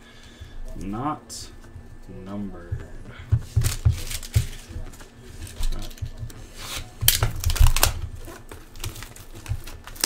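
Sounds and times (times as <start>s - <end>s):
cards rustling and tapping: 2.6s - 10.0s
foil wrapper crinkling: 3.6s - 10.0s.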